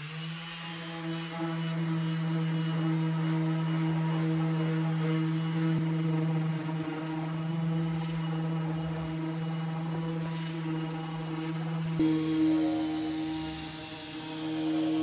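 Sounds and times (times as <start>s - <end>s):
orbital sander sanding wood: 0.0s - 15.0s.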